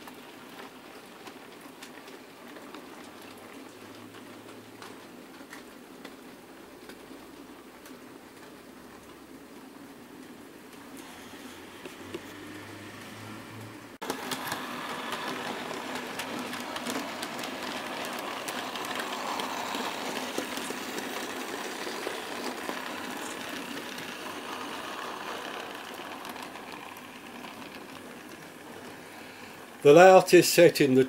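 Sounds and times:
small electric motor whirring: 0:11.0 - 0:28.3
model train wheels clicking: 0:14.0 - 0:31.0.

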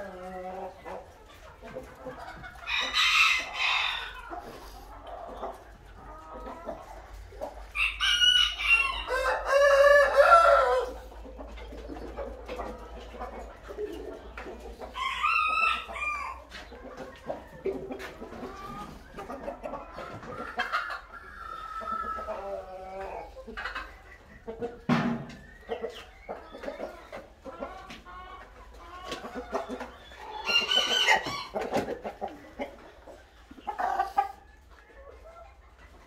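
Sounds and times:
chicken calls: 0:00.0 - 0:36.0
roosters crowing: 0:02.6 - 0:04.4, 0:07.6 - 0:11.1, 0:14.8 - 0:16.7, 0:30.2 - 0:32.0.

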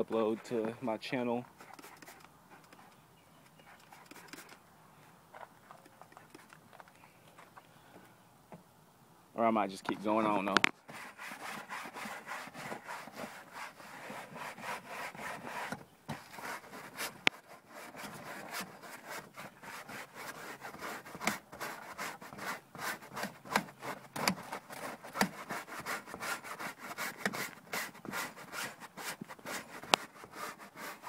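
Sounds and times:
hand scrubbing rubbing strokes: 0:09.9 - 0:31.0.

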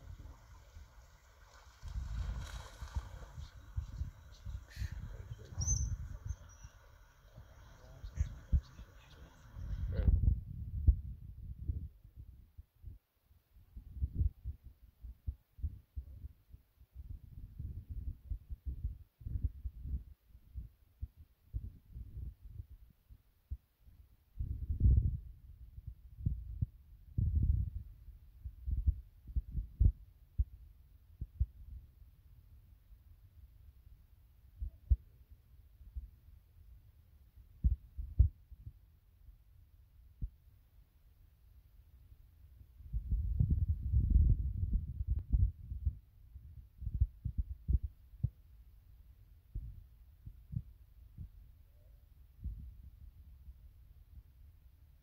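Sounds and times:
wind buffeting microphone: 0:00.0 - 0:12.6, 0:24.4 - 0:30.5, 0:42.8 - 0:48.4.

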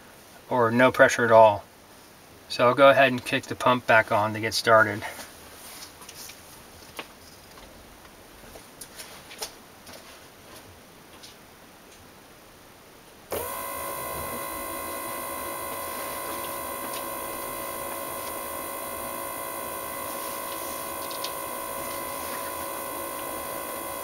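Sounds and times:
electric fuel pump whining: 0:13.3 - 0:24.0.

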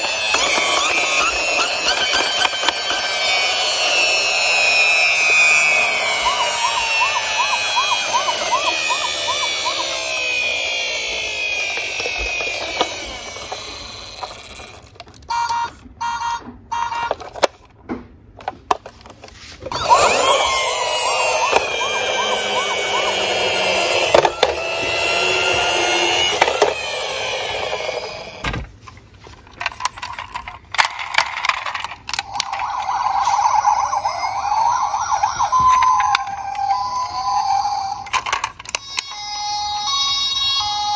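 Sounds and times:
loud warbling siren: 0:00.0 - 0:14.8, 0:19.7 - 0:28.4, 0:32.2 - 0:38.1
toy siren wailing: 0:00.0 - 0:17.2, 0:19.7 - 0:28.4, 0:32.1 - 0:40.9.

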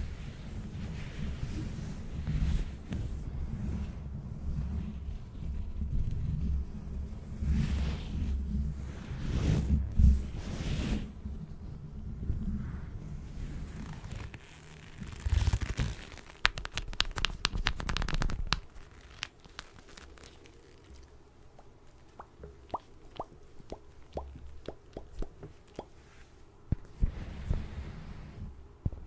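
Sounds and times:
leather gloves creaking: 0:13.8 - 0:21.7.

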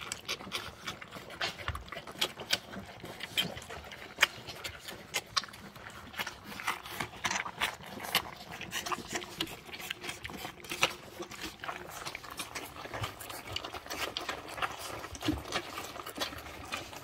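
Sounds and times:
puppies eating with smacks and licks: 0:00.0 - 0:17.0.

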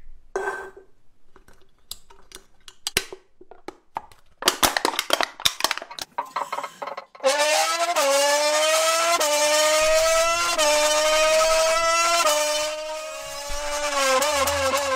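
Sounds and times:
aluminium can crumpling: 0:01.4 - 0:06.1.

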